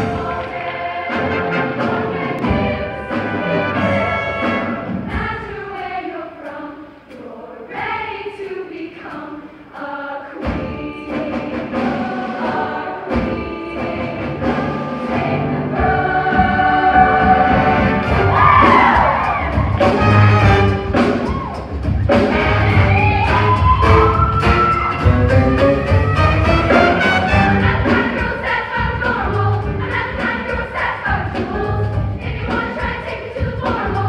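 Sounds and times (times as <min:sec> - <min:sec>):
choir singing with accompaniment: 0:00.0 - 0:34.0.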